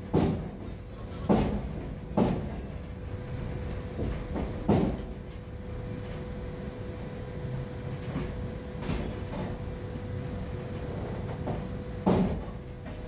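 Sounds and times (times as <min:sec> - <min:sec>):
train wheels clacking over rail joints: 0:00.0 - 0:02.8
faint steady whine: 0:00.0 - 0:13.0.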